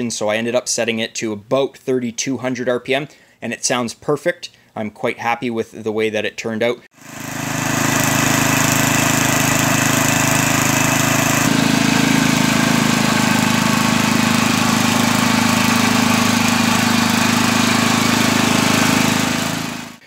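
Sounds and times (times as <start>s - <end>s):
snowblower engine running: 7.0s - 20.0s.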